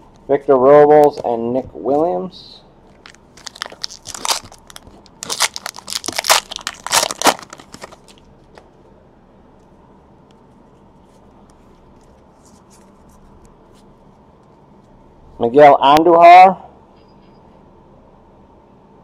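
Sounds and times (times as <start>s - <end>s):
foil wrapper tearing and crinkling: 2.9s - 8.2s.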